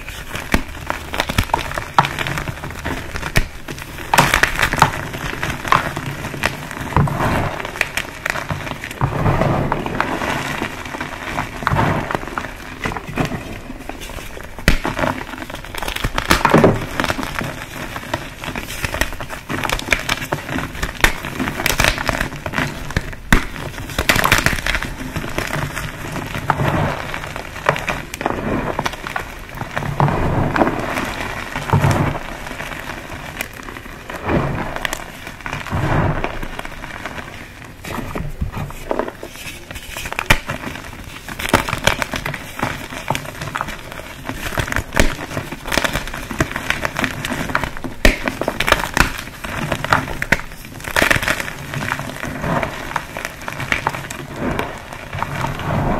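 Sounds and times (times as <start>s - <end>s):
chalk blocks crunching: 0.0s - 29.5s, 34.8s - 55.7s.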